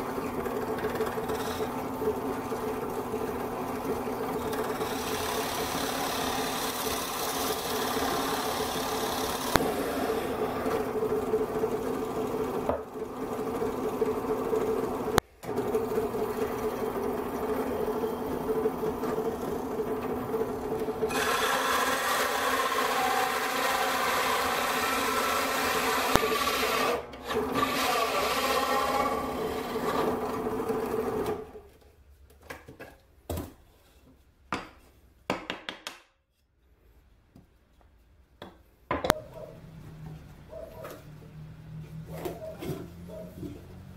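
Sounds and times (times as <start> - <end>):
drill press motor hum: 0.0 - 31.6
hole saw rasping through plywood: 0.6 - 2.0, 4.4 - 14.8, 17.7 - 31.5.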